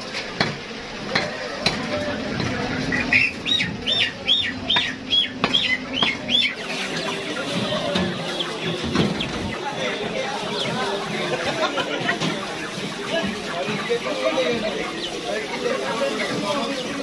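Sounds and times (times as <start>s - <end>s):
bird chirping: 2.8s - 9.7s.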